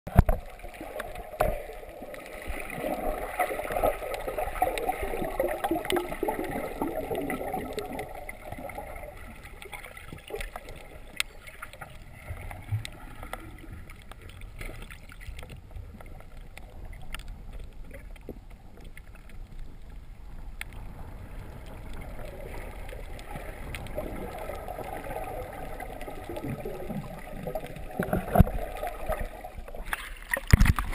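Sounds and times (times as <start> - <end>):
muffled underwater bubbles: 0.1 - 30.9
small clicks: 9.6 - 19.7.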